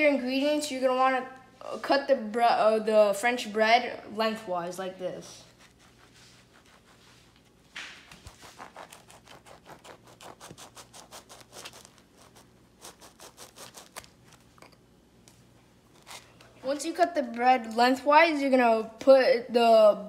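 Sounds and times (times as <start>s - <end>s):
knife sawing through bread crust: 8.1s - 14.1s.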